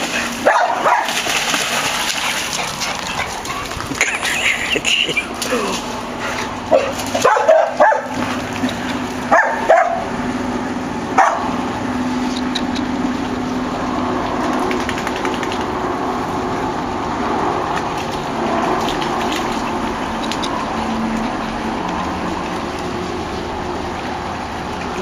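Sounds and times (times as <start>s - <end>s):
dogs barking: 0.0s - 5.1s, 6.4s - 10.2s, 11.1s - 11.7s.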